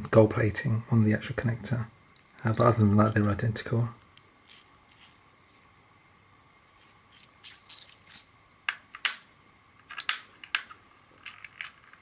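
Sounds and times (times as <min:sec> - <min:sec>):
small metal parts clicking: 0:07.2 - 0:09.2, 0:09.8 - 0:12.0.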